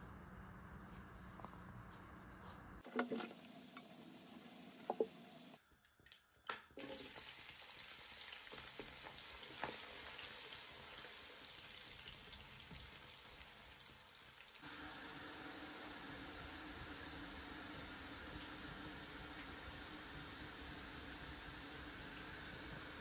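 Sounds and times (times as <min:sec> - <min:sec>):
onions sizzling in hot oil: 0:06.8 - 0:23.0.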